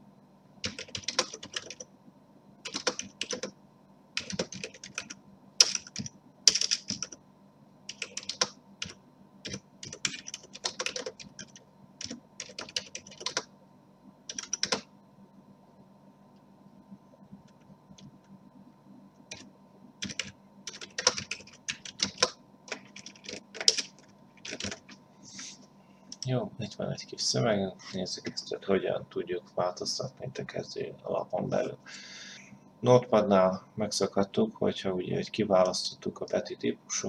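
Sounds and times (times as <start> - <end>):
typing on computer keyboard: 0.6 - 1.9, 2.6 - 3.5, 4.2 - 7.2, 7.9 - 13.5, 14.3 - 14.9, 19.3 - 25.0.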